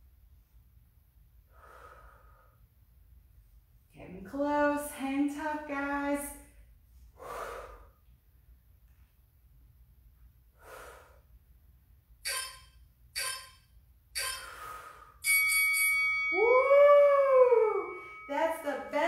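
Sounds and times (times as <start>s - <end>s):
sharp breaths: 1.5s - 2.7s, 7.1s - 8.0s, 10.5s - 11.4s, 14.2s - 15.4s
sustained high tone: 12.3s - 13.6s, 14.2s - 19.0s
wailing tone: 16.3s - 19.0s.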